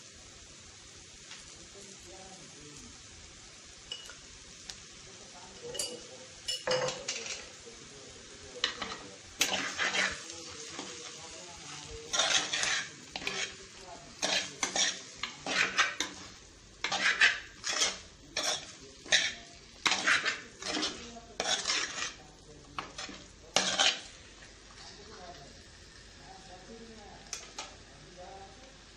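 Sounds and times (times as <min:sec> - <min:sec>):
spoon scraping clay pot: 0:08.7 - 0:10.3, 0:12.1 - 0:13.6, 0:14.2 - 0:22.2, 0:22.8 - 0:24.1.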